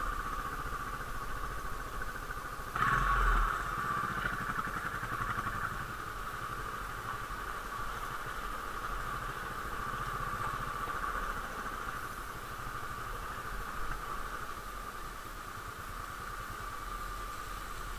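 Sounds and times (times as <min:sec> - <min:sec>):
steady hiss: 0:00.0 - 0:17.9
vehicle engine rumbling: 0:00.0 - 0:17.9.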